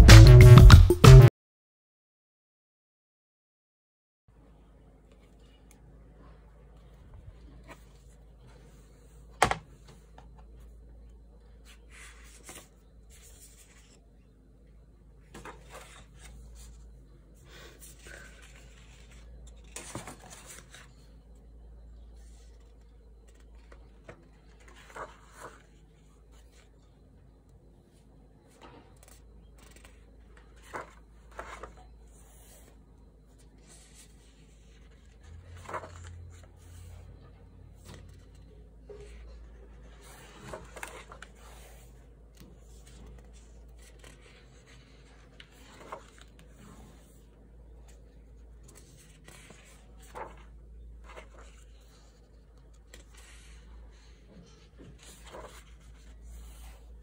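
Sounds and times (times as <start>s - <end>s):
paper pages rustling: 11.6s - 14.0s, 15.3s - 16.9s, 17.5s - 21.2s, 22.2s - 26.7s, 28.6s - 37.0s, 37.8s - 57.0s.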